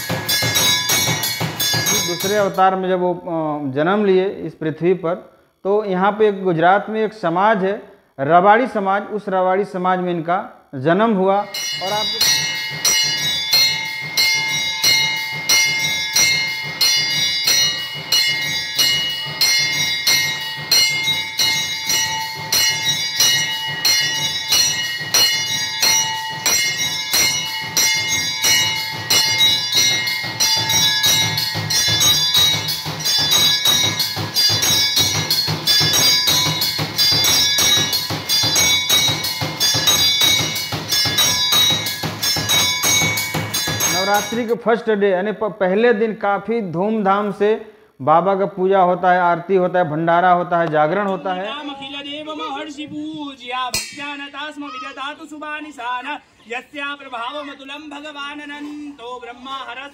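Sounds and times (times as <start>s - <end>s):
temple bell ringing: 0.0s - 3.0s, 11.3s - 44.6s, 50.6s - 52.9s, 53.7s - 55.0s.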